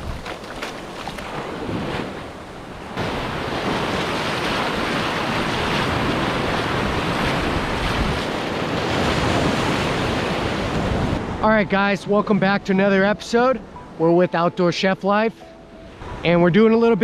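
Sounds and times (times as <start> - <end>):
surf washing up sand: 0.0 - 13.1.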